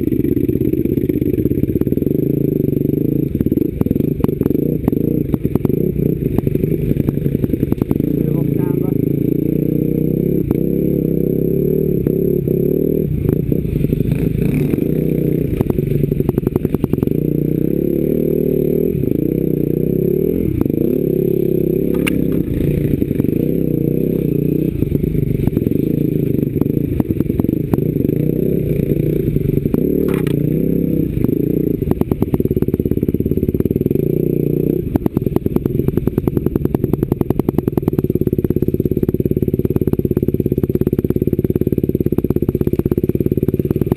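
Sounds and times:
motorcycle engine revving: 0.0 - 43.9
motorcycle rattling: 0.0 - 43.9.

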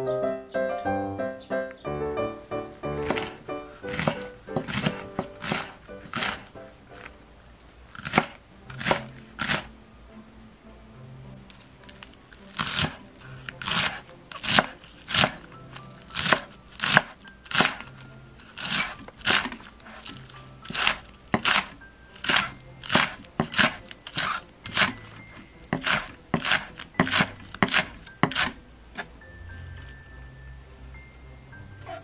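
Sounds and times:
knife slicing on wooden board: 2.8 - 7.1, 7.9 - 9.7, 11.8 - 28.6.

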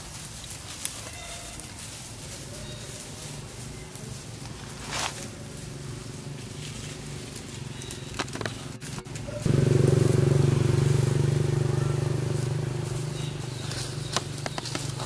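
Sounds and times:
rustle: 0.0 - 15.0
engine running with fast flutter: 5.2 - 15.0.

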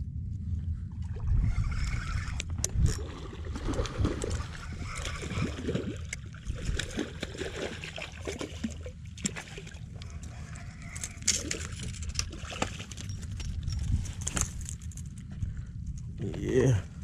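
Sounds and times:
wind buffeting microphone: 0.0 - 7.1, 10.1 - 17.0.

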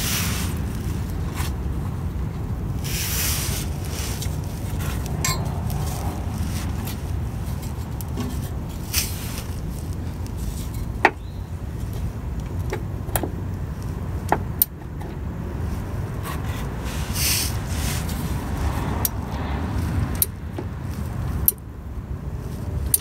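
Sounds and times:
scraping rustle: 0.0 - 2.0, 2.7 - 11.0, 15.6 - 19.0
low background rumble: 0.0 - 23.0.

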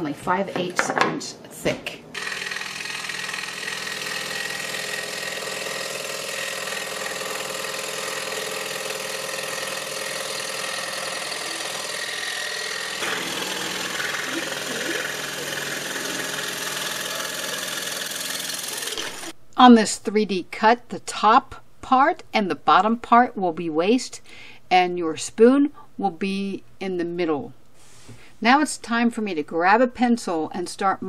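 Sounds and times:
scroll saw cutting wood: 2.2 - 19.3.

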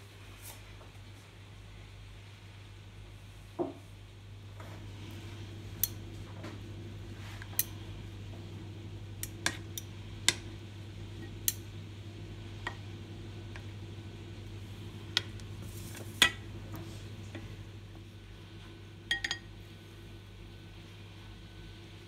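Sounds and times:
steady low hum: 0.0 - 22.0
tongs clicking against bowl: 11.2 - 11.7.

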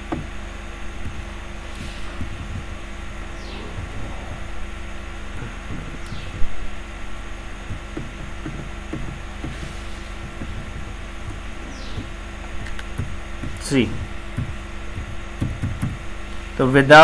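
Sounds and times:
room hum and hiss: 0.0 - 17.0
faint knocks: 7.6 - 16.0.

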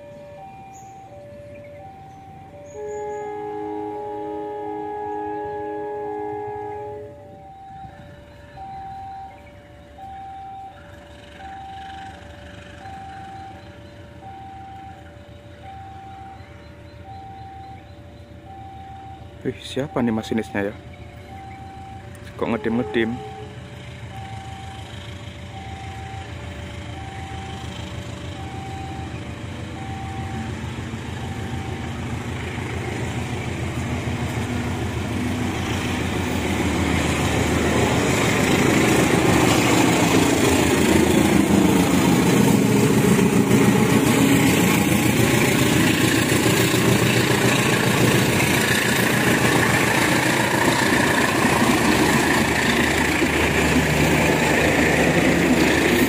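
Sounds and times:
level crossing alarm two tones: 0.0 - 3.2, 6.7 - 12.2, 12.8 - 24.9, 25.5 - 27.7, 28.4 - 32.1
diesel locomotive engine passing: 0.0 - 56.0
train coaches rolling by: 0.0 - 56.0.

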